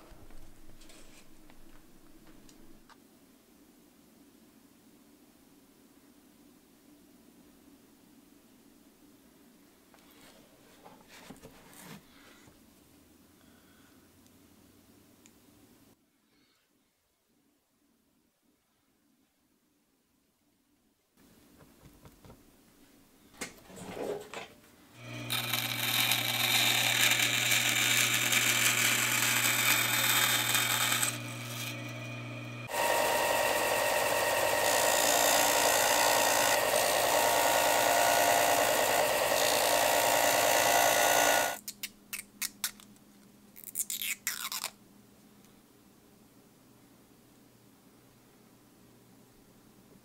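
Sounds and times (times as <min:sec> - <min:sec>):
disc sander grinding plastic: 0:25.0 - 0:41.6.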